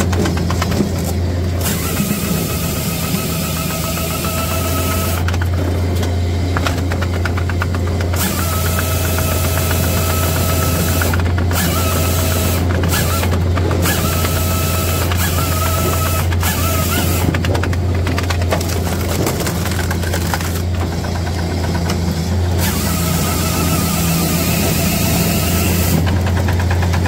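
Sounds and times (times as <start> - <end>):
rapid clattering and knocks: 0.0 - 1.3, 5.2 - 11.7, 15.0 - 22.6, 25.9 - 27.0
chain saw whining: 0.0 - 27.0
firewood processor droning: 0.0 - 27.0.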